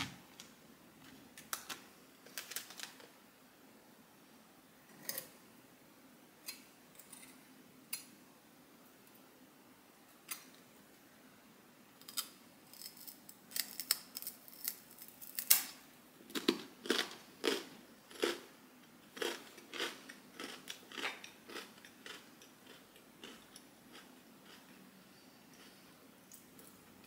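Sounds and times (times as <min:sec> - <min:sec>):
crispbread crunching: 0:16.3 - 0:18.4, 0:19.2 - 0:24.7.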